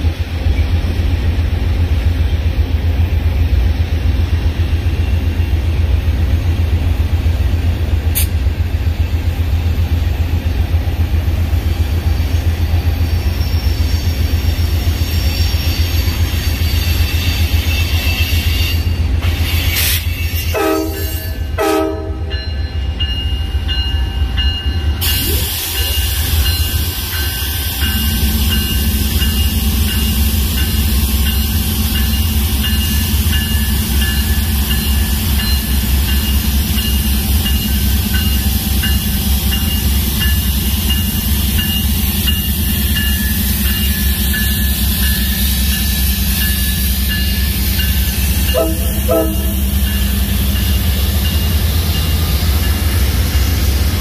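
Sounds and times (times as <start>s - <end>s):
diesel locomotive engines rumbling: 0.0s - 54.0s
short train horn blasts: 19.7s - 22.4s, 48.5s - 49.8s.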